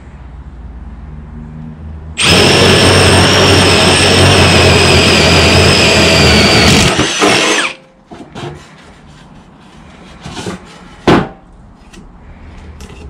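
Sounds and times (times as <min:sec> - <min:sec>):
cordless drill boring through wood: 0:02.2 - 0:07.8.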